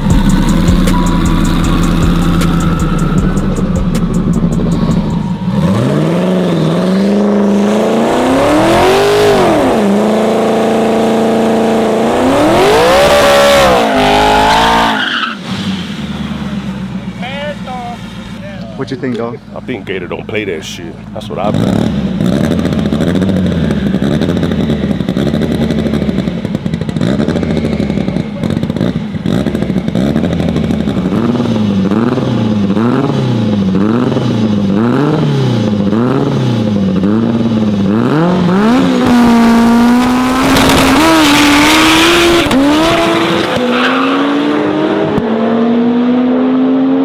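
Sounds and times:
cars launching at full throttle: 0.0s - 19.9s, 21.0s - 47.0s
car engines revving: 0.0s - 47.0s.

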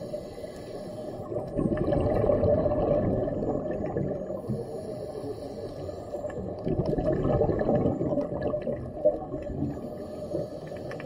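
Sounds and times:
muffled underwater rumble: 0.0s - 11.0s
faint clicks: 10.6s - 11.0s.

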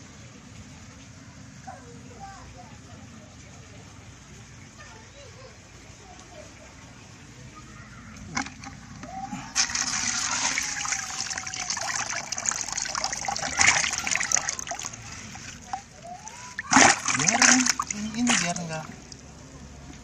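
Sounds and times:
fish splashing in a bucket: 8.2s - 20.0s.

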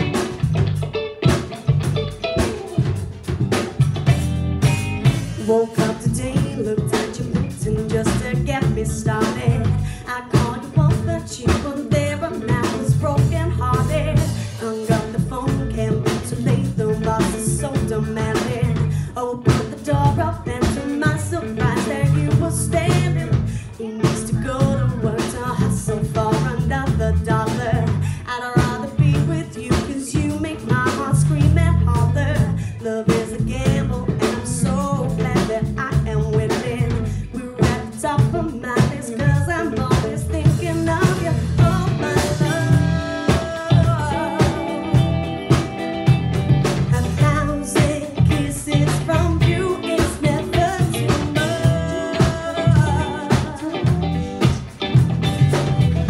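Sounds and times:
bass guitar: 0.0s - 56.0s
drum kit: 0.0s - 56.0s
electric guitar: 0.0s - 56.0s
woman singing: 5.4s - 55.5s.

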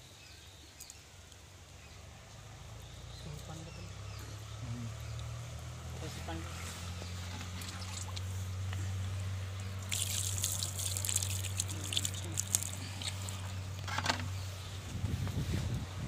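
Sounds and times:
water splashing on hands: 7.6s - 8.3s, 9.7s - 13.5s
water dripping on palm fronds: 9.5s - 13.6s.

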